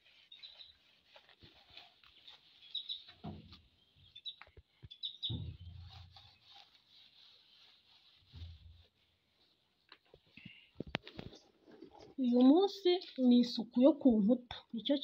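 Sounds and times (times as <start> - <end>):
small birds chirping: 0.0 - 8.4
dull thumps: 5.2 - 6.1
cloth rubbing on window frame: 5.3 - 9.9.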